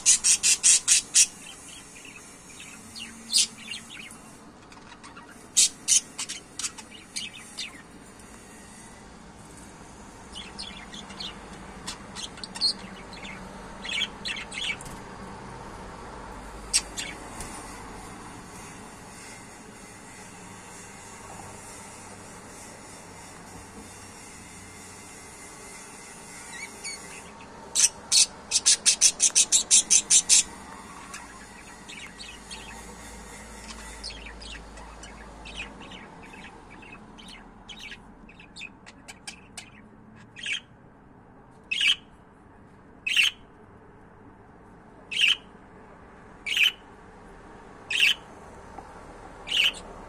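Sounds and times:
budgerigars chirping: 0.0 - 7.9, 10.3 - 15.0, 16.6 - 17.8, 26.5 - 40.7, 41.7 - 42.1, 43.1 - 43.4, 45.1 - 45.5, 46.4 - 46.8, 47.9 - 48.3, 49.4 - 50.0.

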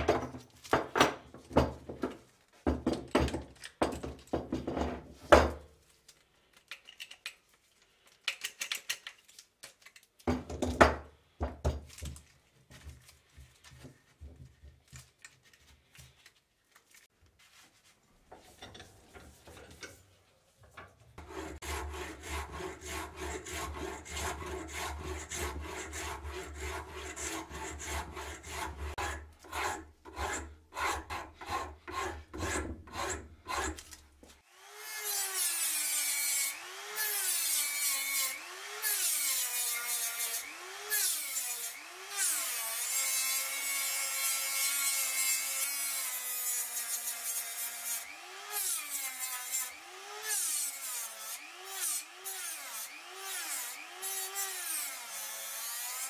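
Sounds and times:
rasp scraping wood: 21.2 - 33.9.

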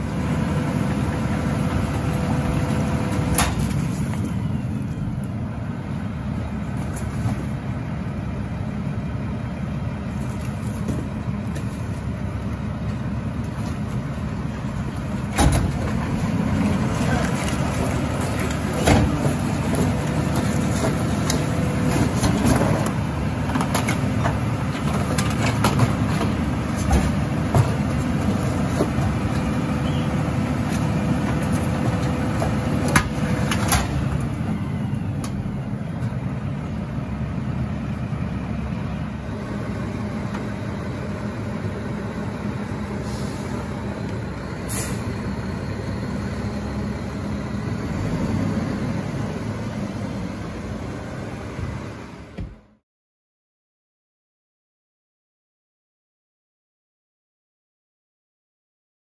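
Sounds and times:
garbage truck engine rumbling: 0.0 - 52.8.

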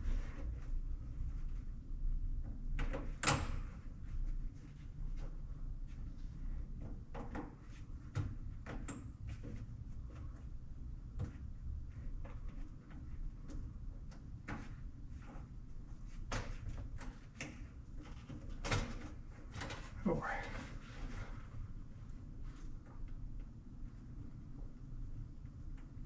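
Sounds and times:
low steady hum: 0.0 - 26.0.

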